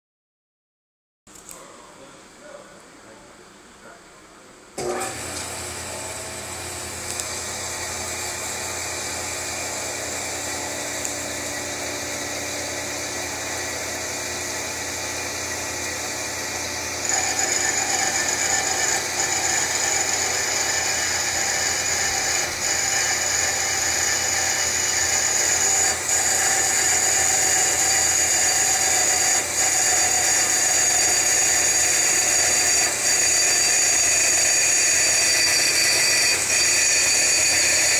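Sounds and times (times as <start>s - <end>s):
band saw cutting metal: 4.8s - 37.9s.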